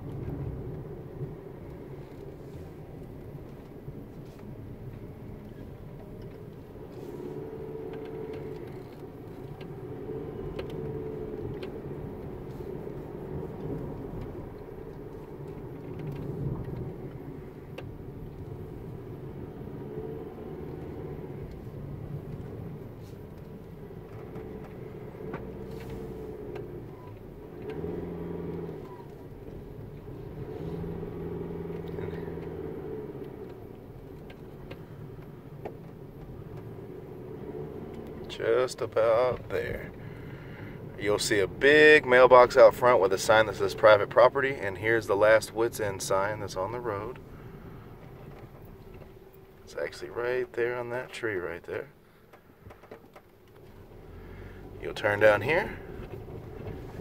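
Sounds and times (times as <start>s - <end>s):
car engine and tyres: 0.0s - 57.0s
small clicks and rattles: 7.6s - 19.8s, 20.7s - 40.9s, 51.0s - 54.0s.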